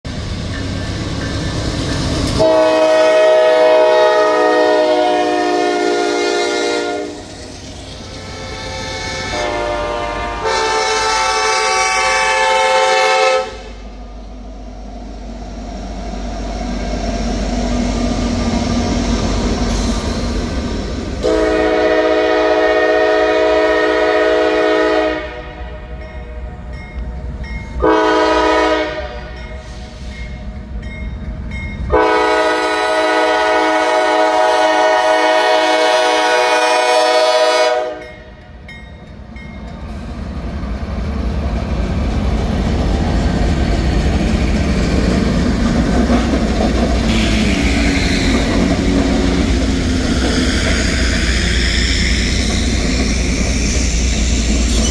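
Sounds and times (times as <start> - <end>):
rumble of locomotives and freight cars: 0.0 - 54.9
locomotive air horn blasts: 2.4 - 7.3, 8.2 - 13.8, 21.2 - 26.0, 27.8 - 30.1, 31.9 - 38.3, 47.1 - 48.6.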